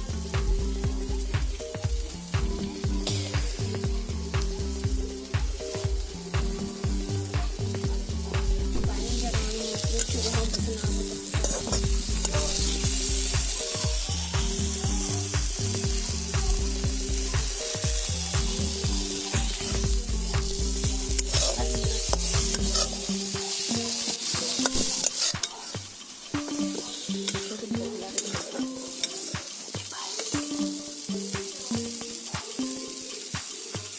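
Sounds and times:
background music with bass beat: 0:00.0 - 0:33.9
fish sizzling in hot oil: 0:00.0 - 0:33.9
metal spatula scraping pan: 0:09.5 - 0:12.7, 0:24.0 - 0:30.3.

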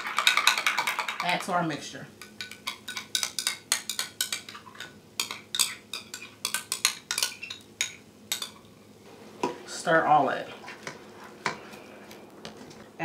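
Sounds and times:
spoon clinking against glass bowl: 0:02.2 - 0:08.7.

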